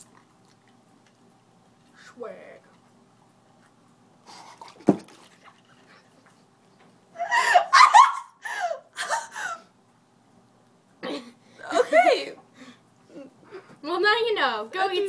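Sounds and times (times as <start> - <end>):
person laughing: 7.2 - 9.6.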